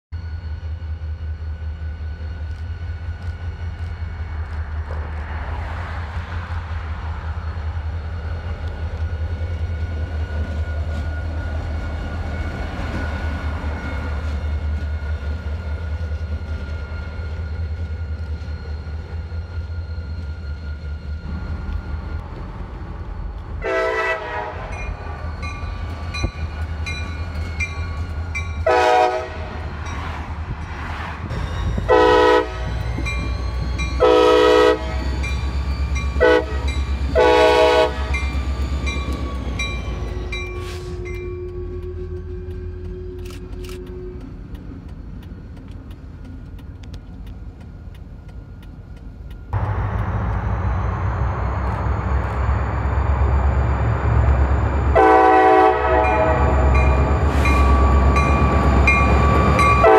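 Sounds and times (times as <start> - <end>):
diesel locomotive engine rumble: 0.1 - 59.9
train horn blasts: 23.6 - 25.2, 28.6 - 29.7, 31.8 - 33.0, 34.0 - 35.2, 36.2 - 38.3, 54.8 - 58.3, 59.5 - 59.9.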